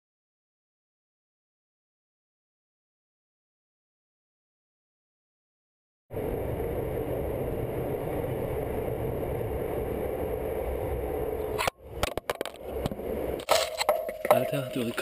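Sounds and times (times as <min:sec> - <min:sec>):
train rumble: 0:06.2 - 0:12.0.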